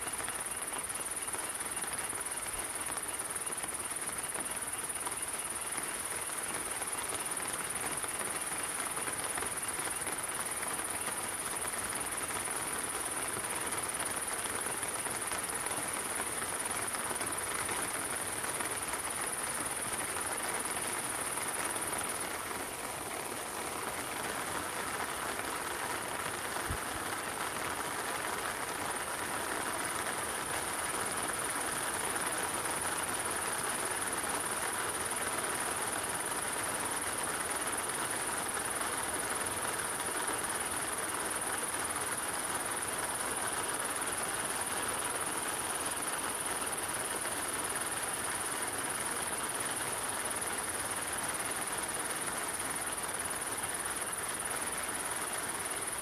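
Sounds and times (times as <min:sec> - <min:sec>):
steady rain in forest: 0:00.0 - 0:56.0.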